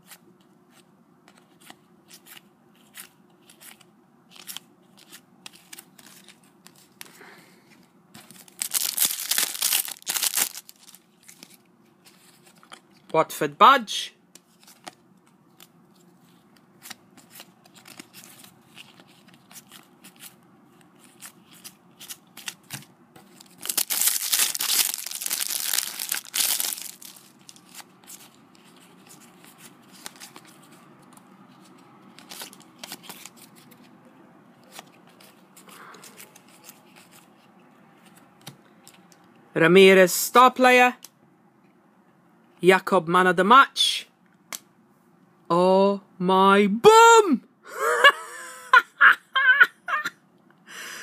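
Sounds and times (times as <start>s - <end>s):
foil packet tearing and crinkling: 8.3s - 11.4s, 23.3s - 28.3s.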